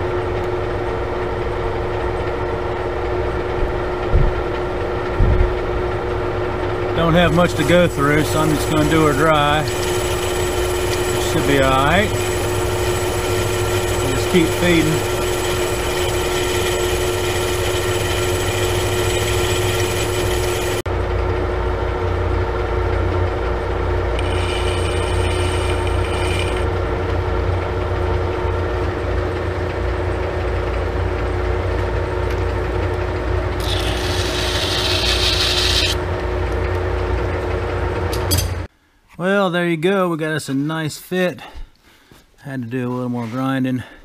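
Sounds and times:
lathe humming and whining: 0:00.0 - 0:38.1
parting tool cutting metal: 0:07.0 - 0:20.8, 0:24.2 - 0:26.7, 0:33.6 - 0:36.0.

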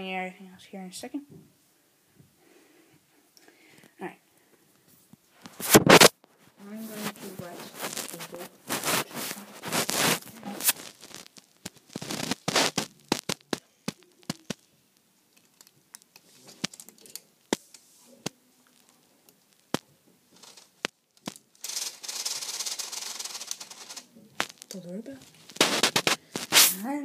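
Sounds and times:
plastic parts clicking and rattling: 0:15.3 - 0:17.8
steady rubbing: 0:21.6 - 0:24.2.

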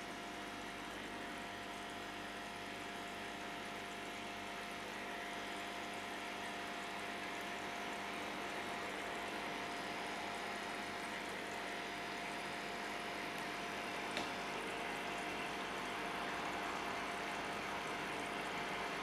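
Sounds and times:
faint pump hum: 0:00.0 - 0:19.0
aquarium water moving: 0:04.8 - 0:19.0.

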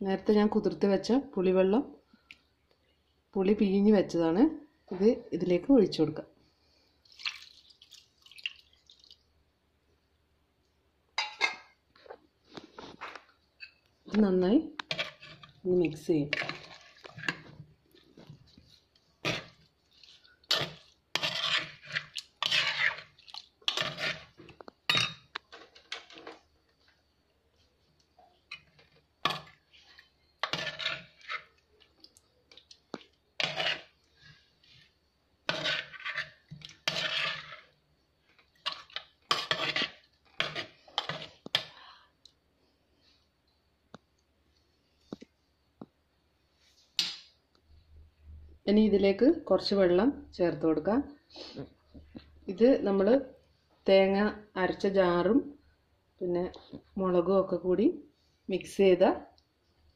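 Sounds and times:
spoon scraping a pot: 0:14.8 - 0:26.4, 0:28.5 - 0:31.6, 0:32.5 - 0:41.8.

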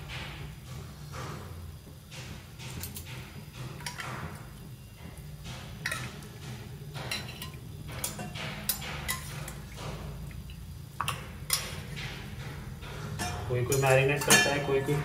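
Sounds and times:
metal spoon clinking on cookware: 0:05.8 - 0:06.2, 0:07.0 - 0:09.4, 0:13.2 - 0:15.0.

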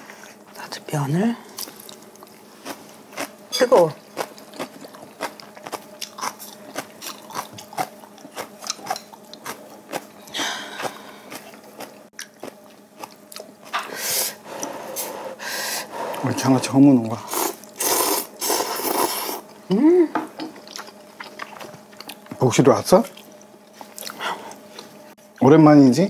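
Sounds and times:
chewing: 0:01.6 - 0:13.9, 0:20.5 - 0:22.4, 0:23.0 - 0:25.0
slurping noodles: 0:17.2 - 0:19.4.

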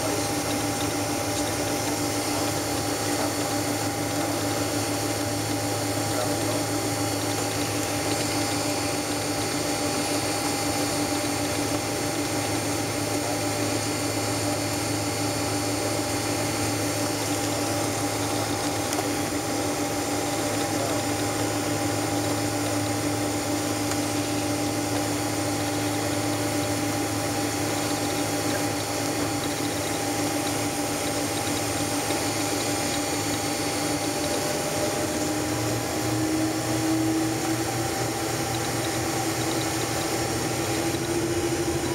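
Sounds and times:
aircraft cabin air and engine rush: 0:32.5 - 0:39.2.

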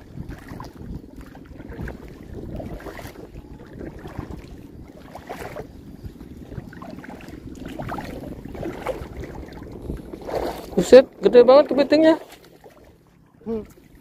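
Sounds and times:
shallow water washing on shore: 0:00.0 - 0:14.0
wind rumbling on microphone: 0:00.0 - 0:14.0.

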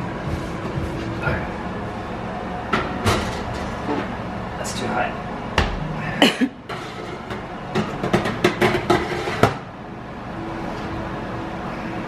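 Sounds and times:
metal oven rack clattering: 0:02.8 - 0:03.9.

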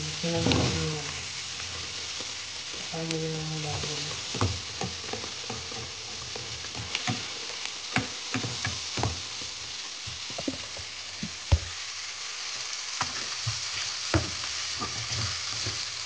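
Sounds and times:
food sizzling in frying pan: 0:00.0 - 0:16.0
spatula scraping and knocking pan: 0:03.6 - 0:11.7, 0:13.0 - 0:16.0.

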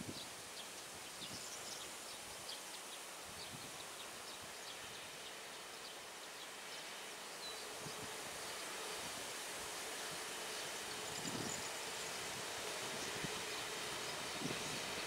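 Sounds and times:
outdoor hiss: 0:00.0 - 0:15.0
distant train hum: 0:03.8 - 0:15.0.

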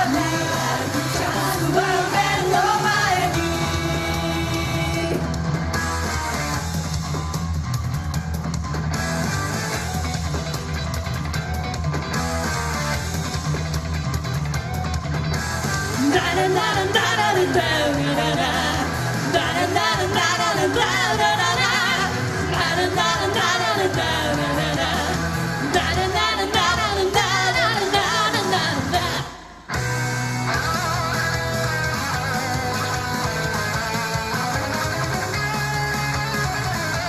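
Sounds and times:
live rock band playing: 0:00.0 - 0:37.0
person singing: 0:16.0 - 0:29.5.

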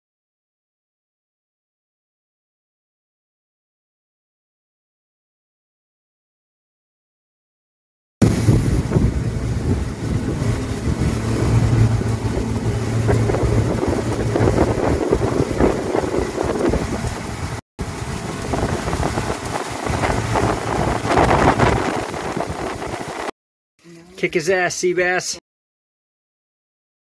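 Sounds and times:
outboard engine hum: 0:08.2 - 0:23.3
rush of boat wake: 0:08.2 - 0:23.3
wind buffeting microphone: 0:08.2 - 0:23.3.

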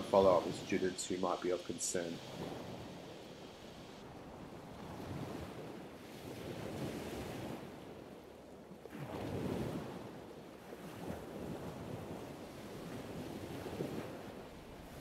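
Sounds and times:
soft rushing noise: 0:00.0 - 0:04.1.

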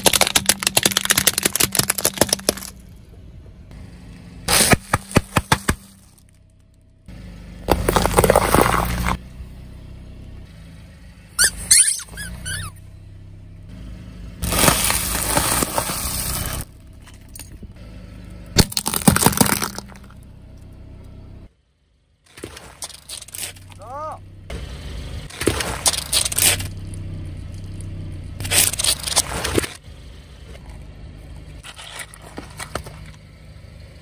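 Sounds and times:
chip bags crunching: 0:00.0 - 0:02.7, 0:14.4 - 0:16.6
plastic cracking under tyre: 0:00.0 - 0:02.8, 0:07.7 - 0:09.2, 0:14.4 - 0:16.7, 0:18.6 - 0:20.2
tyre crushing objects: 0:00.0 - 0:02.8, 0:04.5 - 0:06.3, 0:07.6 - 0:09.2, 0:14.4 - 0:16.7, 0:18.6 - 0:20.1
rubber squeeze toy squeaking: 0:11.4 - 0:12.8.

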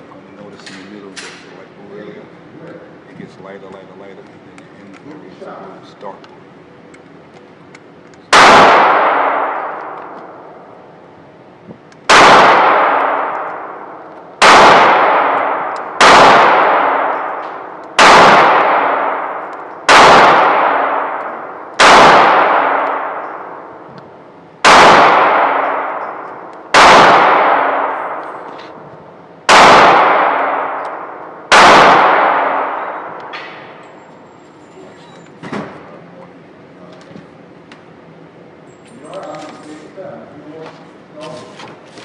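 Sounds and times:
echoing gunshots: 0:08.3 - 0:11.0, 0:12.0 - 0:34.0.

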